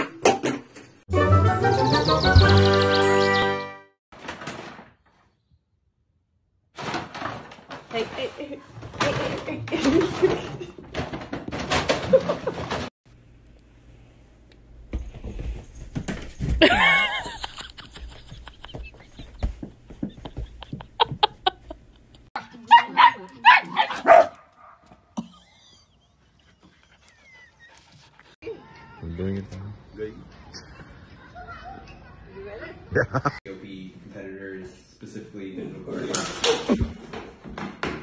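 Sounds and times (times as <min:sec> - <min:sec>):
dog barking: 0:22.4 - 0:24.8.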